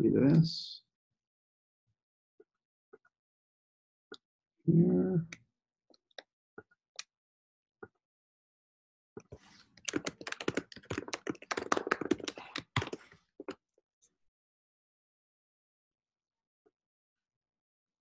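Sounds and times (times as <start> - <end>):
typing on a computer keyboard: 9.8 - 13.5.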